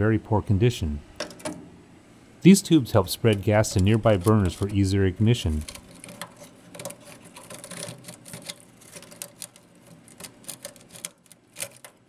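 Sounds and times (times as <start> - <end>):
light clicking and crackling: 3.2 - 4.8, 5.4 - 12.0
metal tube scraping grease: 3.3 - 4.8, 5.5 - 12.0.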